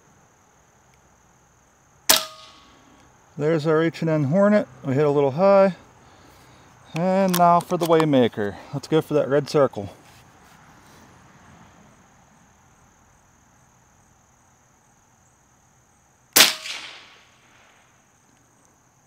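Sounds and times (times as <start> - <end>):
air rifle shot crack: 2.1 - 2.7, 16.4 - 17.8.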